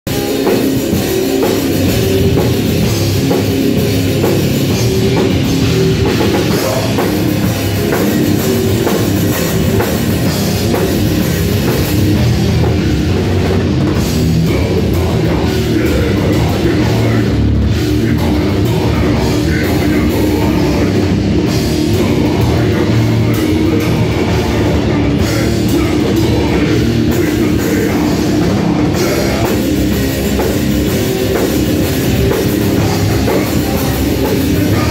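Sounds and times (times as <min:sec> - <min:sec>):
drum kit: 0:00.0 - 0:34.9
electric guitars: 0:00.0 - 0:34.9
live heavy rock band: 0:00.0 - 0:34.9.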